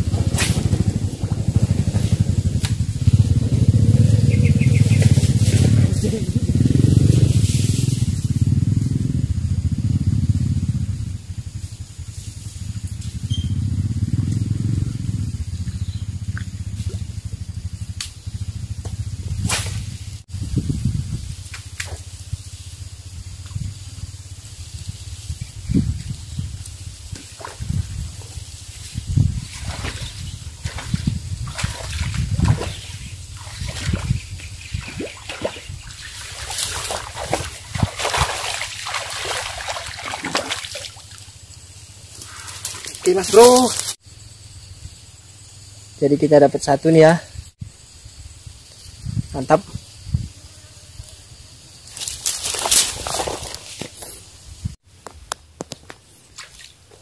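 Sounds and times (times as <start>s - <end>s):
small engine running: 0.0s - 20.2s
fish thrashing and splashing water: 29.5s - 41.2s, 52.2s - 53.8s.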